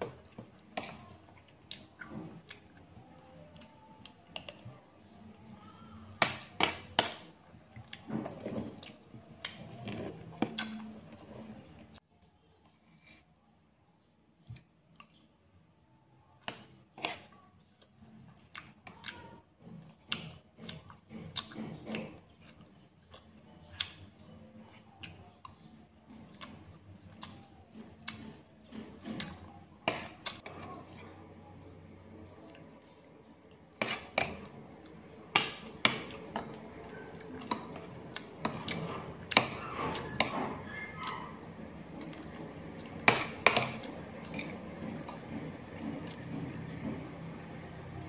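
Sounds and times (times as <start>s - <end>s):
chewing: 0.0s - 5.3s, 7.7s - 11.9s, 16.4s - 31.4s, 32.2s - 47.7s
cutlery scraping a plate: 43.0s - 46.3s.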